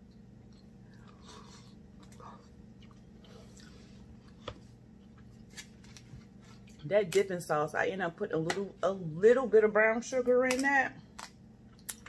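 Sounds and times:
person chewing food: 0:00.0 - 0:06.8.

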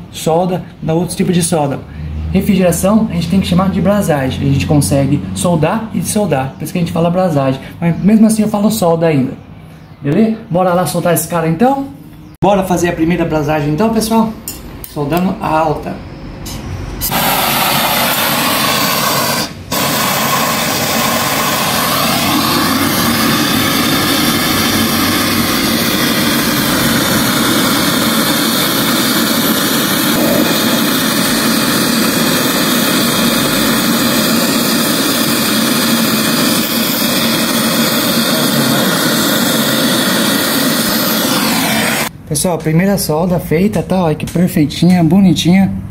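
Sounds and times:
torch burning with loud hiss: 0:17.0 - 0:42.1.

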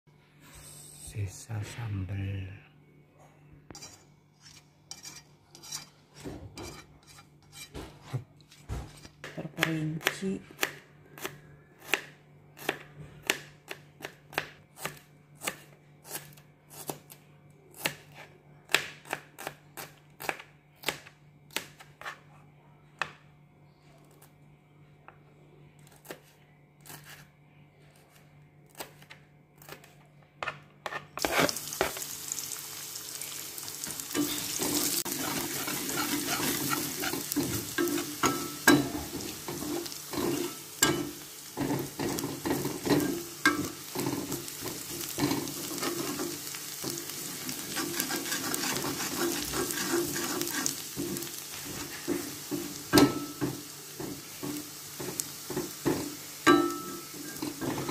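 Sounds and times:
metal spatula scraping wok: 0:03.8 - 0:09.2, 0:30.8 - 0:32.1, 0:33.8 - 0:53.4, 0:56.4 - 0:57.9
aromatics sizzling in hot oil: 0:31.2 - 0:57.9.

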